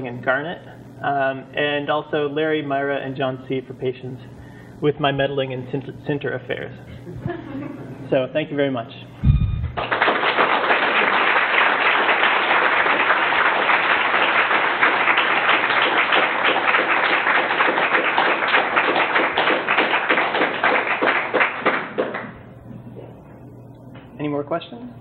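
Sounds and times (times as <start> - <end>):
audience applauding: 9.7 - 22.3.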